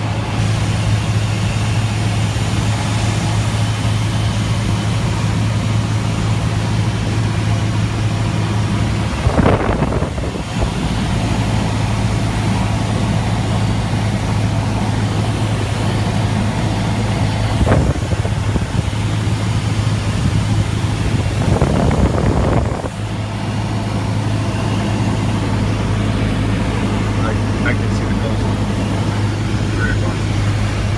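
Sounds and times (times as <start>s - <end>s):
airplane engine droning in cabin: 0.0s - 30.9s.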